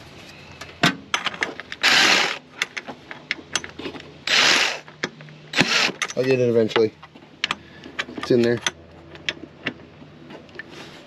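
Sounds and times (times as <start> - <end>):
cordless drill spinning: 1.8 - 2.4, 4.2 - 4.9, 5.5 - 6.0.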